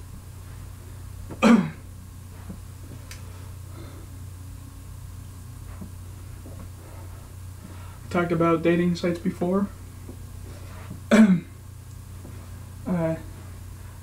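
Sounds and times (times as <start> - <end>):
steady low hum: 0.0 - 14.0
man coughing: 1.4 - 1.9, 11.1 - 11.6.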